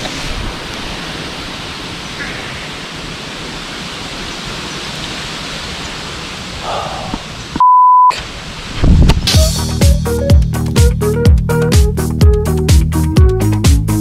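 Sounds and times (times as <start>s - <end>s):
censor bleep: 7.6s - 8.2s
dance music with a beat: 9.3s - 14.0s.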